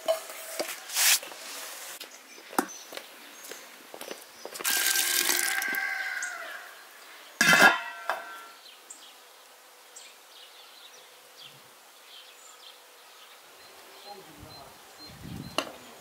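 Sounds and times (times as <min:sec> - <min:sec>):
metal lid clanging onto pot: 0:07.4 - 0:08.5
metal pot ringing: 0:07.4 - 0:08.5.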